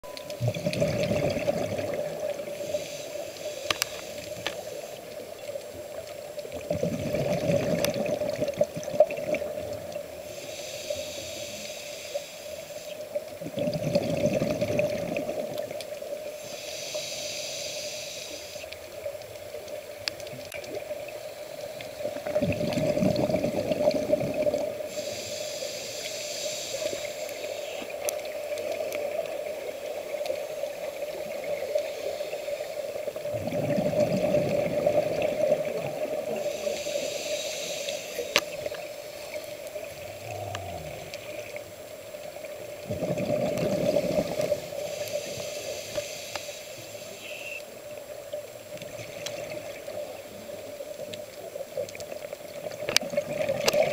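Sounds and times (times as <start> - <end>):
diver breathing through regulator: 10.2 - 13.0, 16.4 - 18.6, 24.9 - 27.9, 36.3 - 39.3, 39.9 - 41.7, 43.7 - 47.3.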